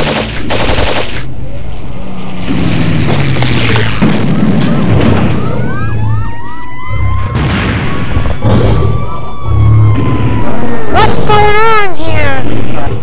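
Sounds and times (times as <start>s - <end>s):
emergency siren wailing: 3.6s - 11.9s
deep booms: 7.1s - 11.5s.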